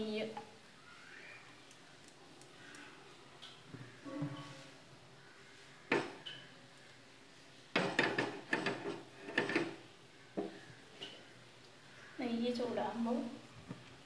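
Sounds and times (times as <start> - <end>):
cookware knocking and rattling: 7.8 - 9.8.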